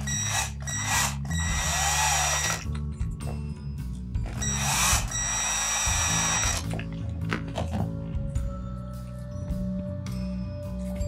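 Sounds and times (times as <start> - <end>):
cordless drill whining: 0.0 - 2.7, 4.3 - 6.8
background music: 0.0 - 11.0.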